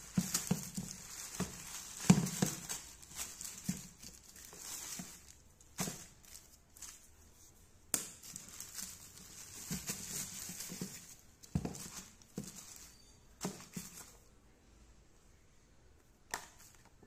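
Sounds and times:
plastic mailer bag rustling: 0:00.0 - 0:07.2, 0:08.2 - 0:14.3.

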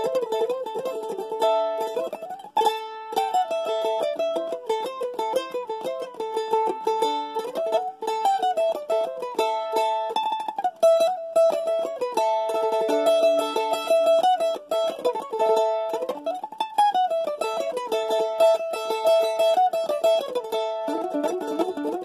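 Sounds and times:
mandolin tremolo melody: 0:00.0 - 0:22.0.

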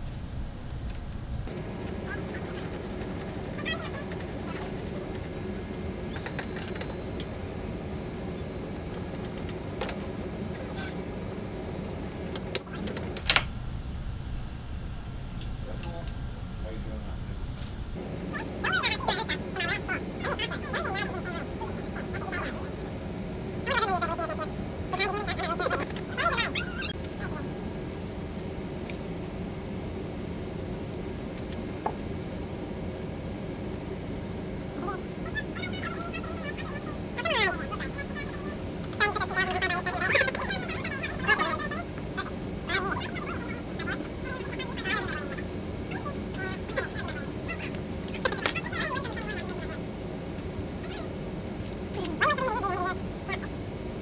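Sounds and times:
low background rumble: 0:00.0 - 0:27.8
steady low hum: 0:00.0 - 0:54.0.

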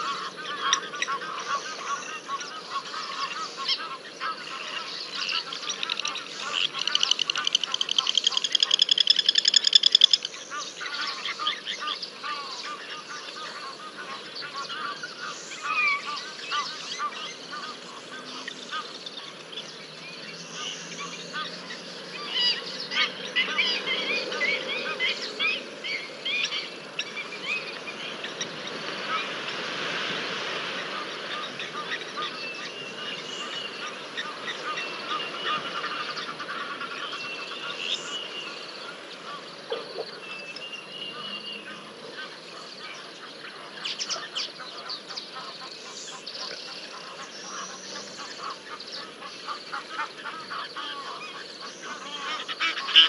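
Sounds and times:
wild dogs twittering and squeaking: 0:04.4 - 0:11.6, 0:39.6 - 0:41.4.

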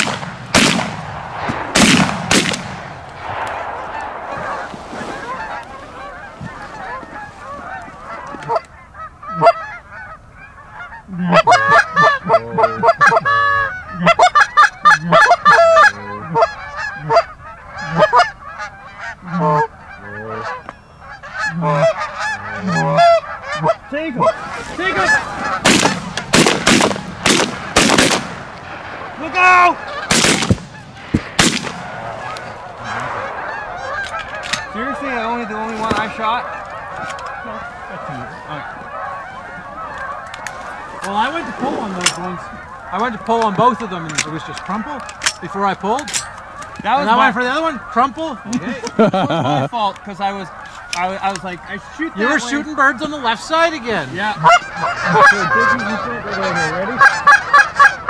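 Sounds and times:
geese honking: 0:00.0 - 0:58.0.

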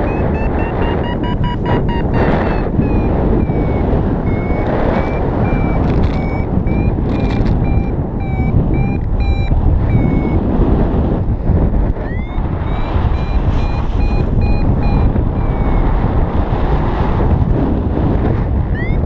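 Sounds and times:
variometer beeping: 0:00.0 - 0:10.6, 0:11.9 - 0:16.0, 0:18.7 - 0:19.0
wind on microphone: 0:00.0 - 0:19.0.

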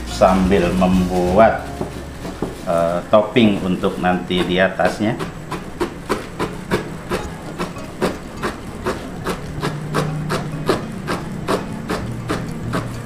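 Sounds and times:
cleaver chopping on wooden board: 0:05.2 - 0:13.0.

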